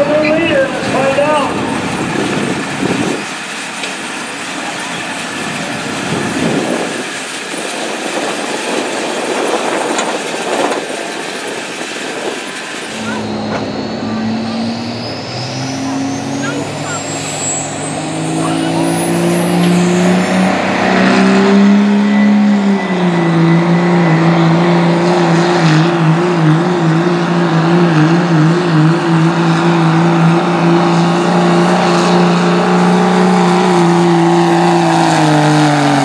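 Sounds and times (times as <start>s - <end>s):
diesel engine running under load: 0.0s - 36.0s.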